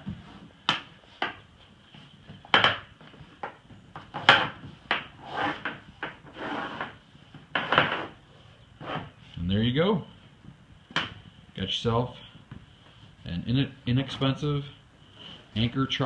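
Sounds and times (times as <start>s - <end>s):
rope rubbing along hull: 5.1s - 9.2s.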